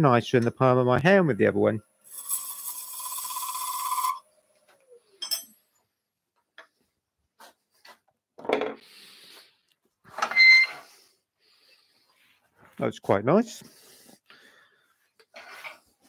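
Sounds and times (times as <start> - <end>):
chisel scraping wood on lathe: 2.2 - 4.2.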